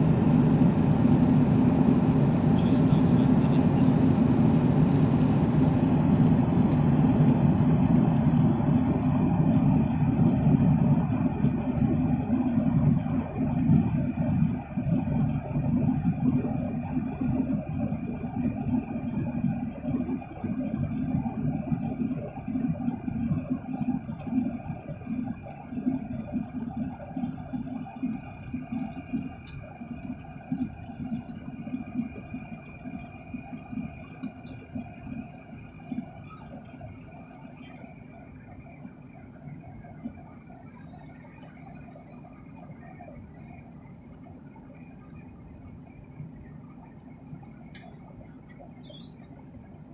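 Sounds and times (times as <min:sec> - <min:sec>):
airliner cabin engine rumble: 0:00.0 - 0:49.9.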